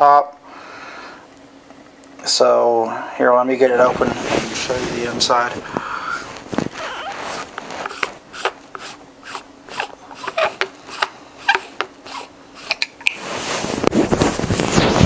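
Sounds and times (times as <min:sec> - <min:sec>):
microphone rubbing against clothing: 0:03.7 - 0:15.0.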